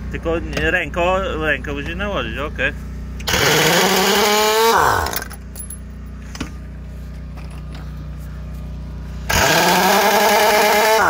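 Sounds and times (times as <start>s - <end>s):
steady low hum: 0.0s - 9.4s
air impact wrench whine: 3.2s - 5.8s, 9.0s - 11.0s.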